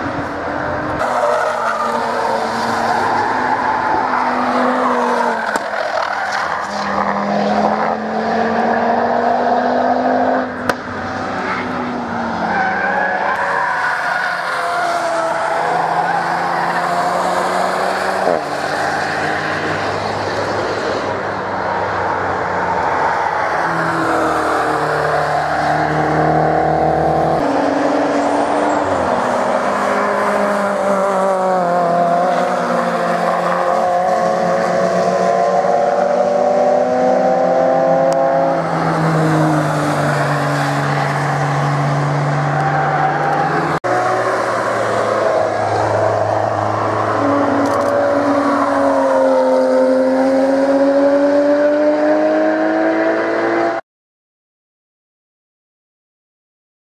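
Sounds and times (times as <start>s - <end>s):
race cars accelerating past: 0.9s - 13.8s, 23.6s - 53.8s.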